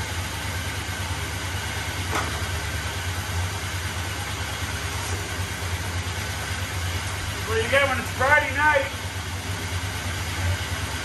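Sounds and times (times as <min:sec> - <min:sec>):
truck engine idling: 0:00.0 - 0:11.0.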